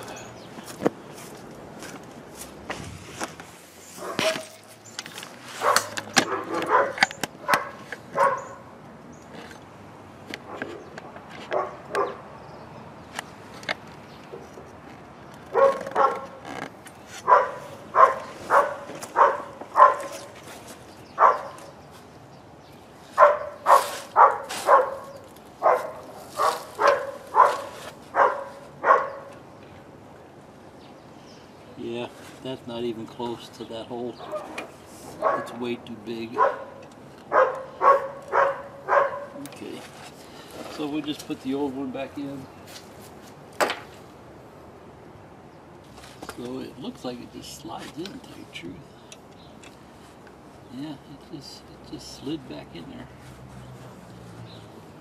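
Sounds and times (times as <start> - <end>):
dog barking: 4.0 - 4.5, 5.6 - 8.6, 11.5 - 12.2, 15.5 - 16.4, 17.2 - 20.3, 21.2 - 21.6, 23.2 - 29.3, 34.2 - 34.6, 35.2 - 35.6, 36.3 - 39.4.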